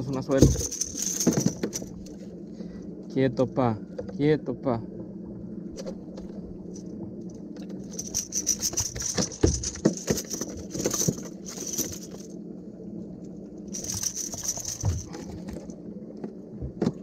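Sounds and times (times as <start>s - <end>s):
hooks and pliers rattling: 0.0s - 2.2s, 7.8s - 12.3s, 13.8s - 15.7s
steady low hum: 0.0s - 17.0s.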